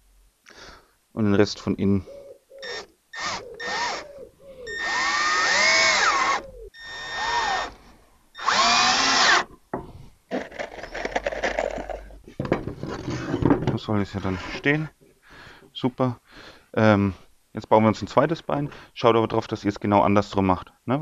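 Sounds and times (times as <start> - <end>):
cordless drill driving screws into wood: 2.6 - 4.0, 4.7 - 7.8, 8.4 - 9.5.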